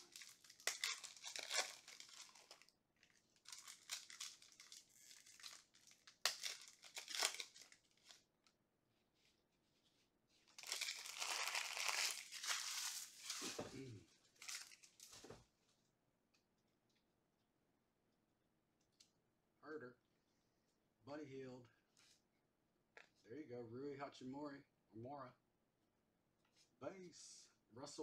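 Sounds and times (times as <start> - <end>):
foil wrappers crinkling and tearing: 0.0 - 8.2, 10.5 - 15.3.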